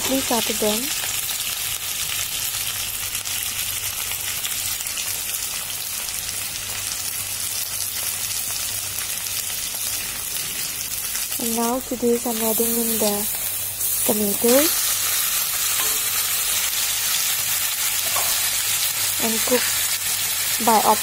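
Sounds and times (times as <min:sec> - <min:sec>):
vegetables sizzling in hot oil: 0:00.0 - 0:21.0.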